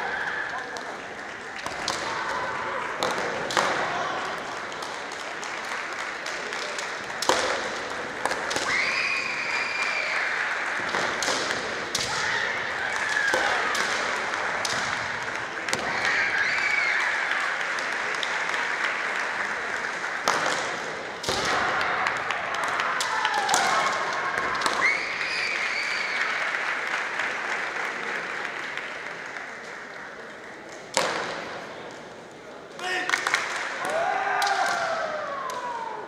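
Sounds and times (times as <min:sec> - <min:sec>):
bamboo swords clacking: 0:06.3 - 0:08.9, 0:10.8 - 0:15.9.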